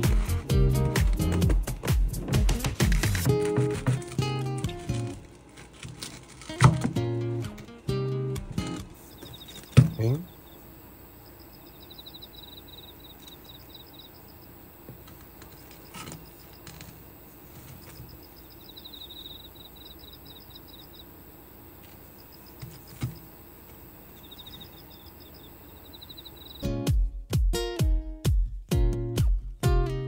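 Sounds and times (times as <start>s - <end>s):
crickets chirping: 8.9s - 26.8s.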